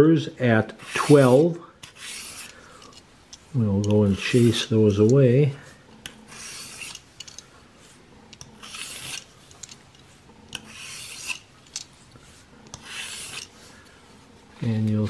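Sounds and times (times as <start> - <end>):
blade scraping sharpening plate: 0.8 - 3.1, 6.0 - 7.4, 8.4 - 9.6, 10.5 - 11.9, 12.7 - 13.6.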